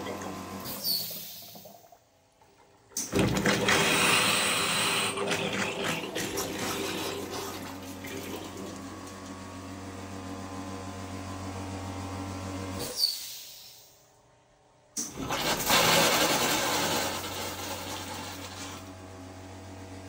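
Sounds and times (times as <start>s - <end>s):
low machine hum: 0.0s - 12.9s
water gushing from a tap: 3.1s - 9.2s, 15.1s - 18.9s.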